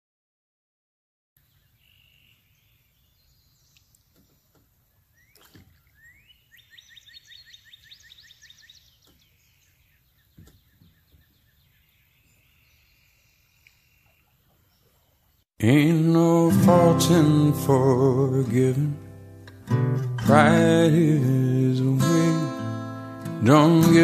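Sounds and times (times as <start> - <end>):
faint birdsong: 1.4 - 15.6.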